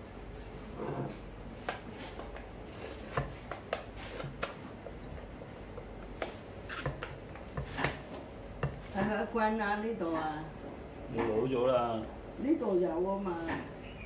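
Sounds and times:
dough rubbing: 1.9s - 10.4s.

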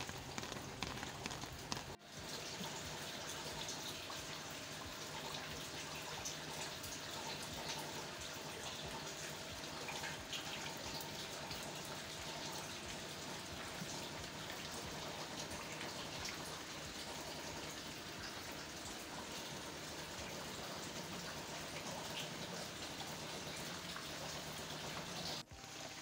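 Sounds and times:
raindrops ticking: 0.0s - 2.0s
rain falling on leaves and roofs: 0.0s - 2.2s.

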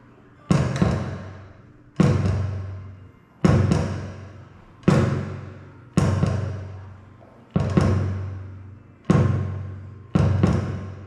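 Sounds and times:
kick drum pedal thumps: 0.5s - 1.4s, 3.4s - 4.2s, 7.5s - 8.4s, 10.2s - 11.0s.

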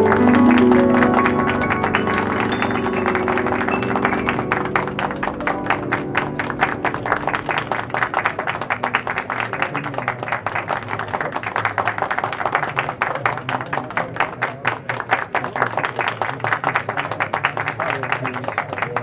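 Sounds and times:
music with low accompaniment: 0.0s - 10.0s.

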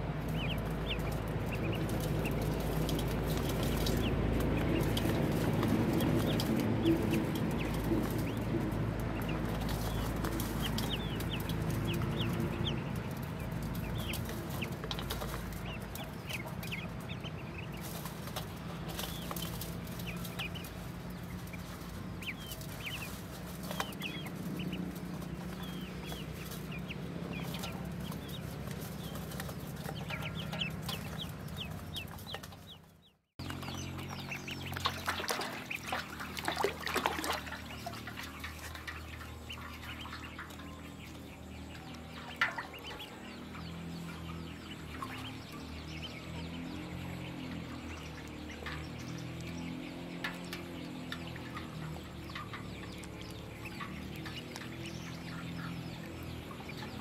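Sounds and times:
ducklings peeping: 0.0s - 57.0s
low steady hum: 33.4s - 57.0s.

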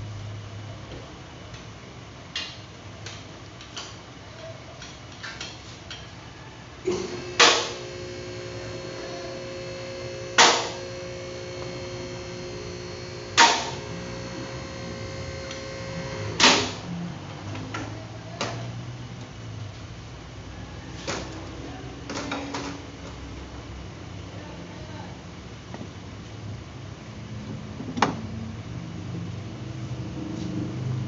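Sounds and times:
steady hum: 6.8s - 17.8s.

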